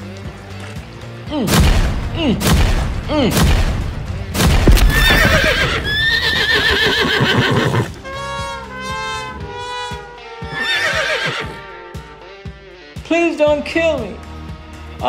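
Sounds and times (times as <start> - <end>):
hooves clattering: 4.5 - 9.6
horses whinnying: 4.7 - 8.0, 10.5 - 11.6.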